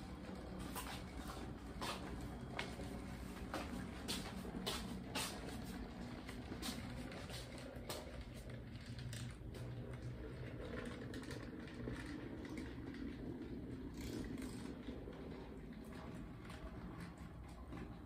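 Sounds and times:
model train motor hum: 5.6s - 18.0s.

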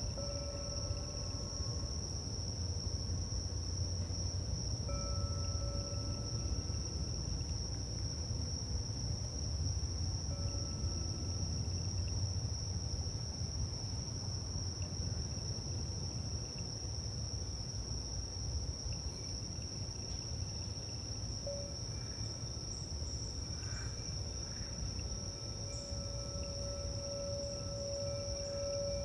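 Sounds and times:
crystal singing bowls ringing: 0.0s - 2.1s, 4.8s - 7.2s, 10.2s - 12.2s, 21.4s - 22.9s, 23.6s - 29.0s
crickets chirring: 0.0s - 29.0s
low steady rumble: 18.4s - 29.0s.

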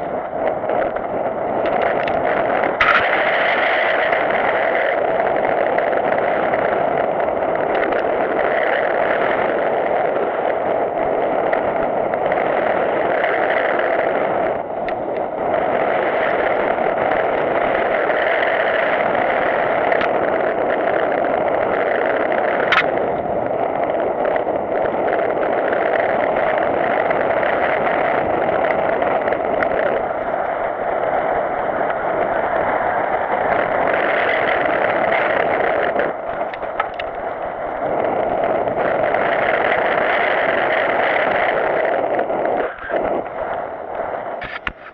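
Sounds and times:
bike tyres on gravel: 0.0s - 44.9s
wind buffeting camera: 0.0s - 44.9s
camera housing rattling: 36.4s - 37.1s, 44.4s - 44.9s.

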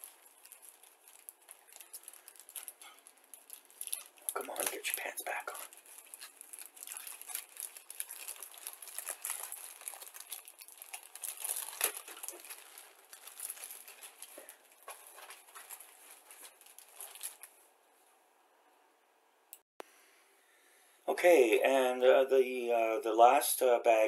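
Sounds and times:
plastic bag crinkling: 0.0s - 17.6s.

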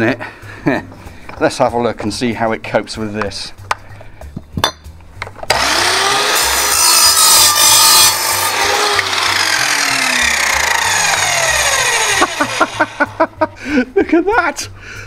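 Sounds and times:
mitre saw motor whining: 5.5s - 13.0s
saw blade cutting wood: 5.5s - 13.1s.

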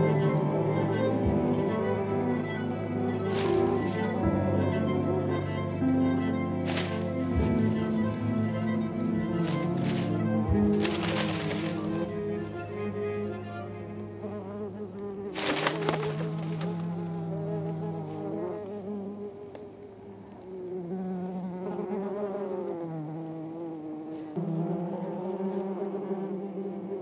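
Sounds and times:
loud rustling burst: 3.3s - 4.1s, 6.6s - 8.4s, 9.4s - 12.4s, 15.3s - 16.9s
wasps buzzing: 6.6s - 13.3s, 13.9s - 19.4s.

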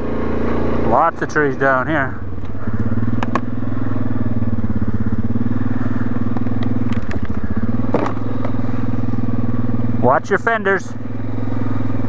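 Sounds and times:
quad engine at low throttle: 0.0s - 12.0s
branches snapping against machine: 6.4s - 8.6s.

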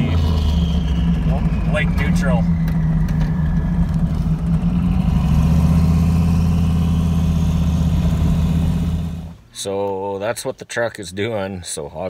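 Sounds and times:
truck engine running: 0.0s - 9.4s.

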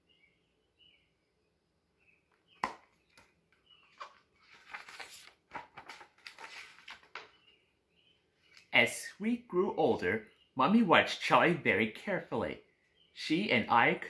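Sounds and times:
paper and cover rustling: 3.8s - 7.3s.

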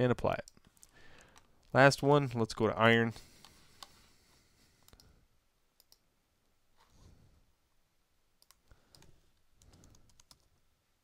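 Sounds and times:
computer mouse clicks: 4.8s - 5.1s, 5.8s - 6.0s, 8.4s - 10.5s.

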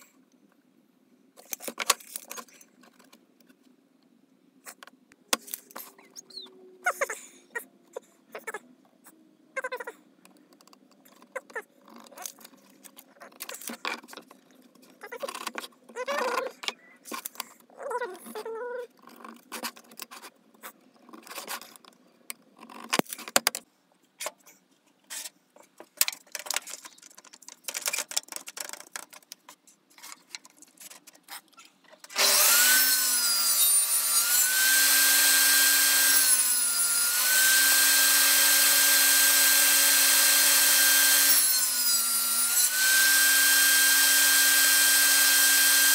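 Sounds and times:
table saw cutting: 32.1s - 45.9s.

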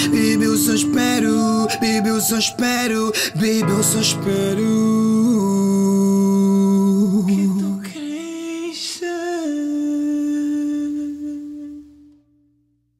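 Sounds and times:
held wavering vocal notes: 0.0s - 5.8s.

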